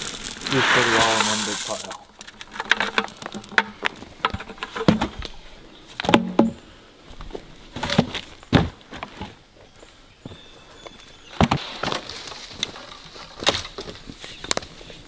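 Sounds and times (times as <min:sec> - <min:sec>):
twigs and leaves crunching: 0:00.0 - 0:06.2, 0:10.2 - 0:15.0
wood knocking on wood: 0:02.4 - 0:05.2.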